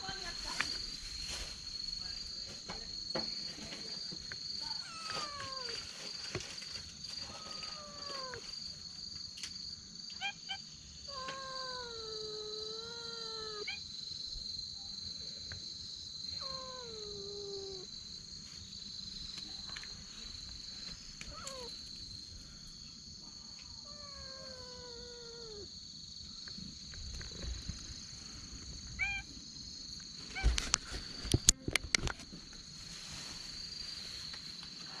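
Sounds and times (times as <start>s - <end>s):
cat meowing: 4.8s - 5.8s, 7.3s - 8.4s, 10.2s - 13.8s, 16.4s - 17.9s, 21.3s - 21.7s, 23.9s - 25.7s, 29.0s - 29.3s.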